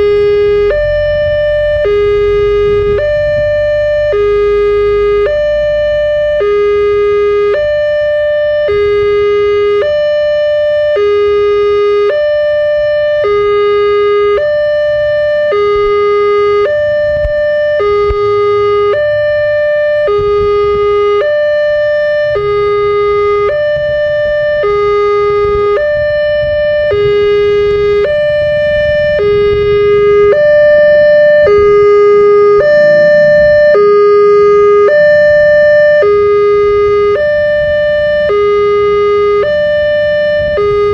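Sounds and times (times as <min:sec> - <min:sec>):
level crossing warning siren: 0:00.0 - 0:40.9
low rumble: 0:26.4 - 0:37.1.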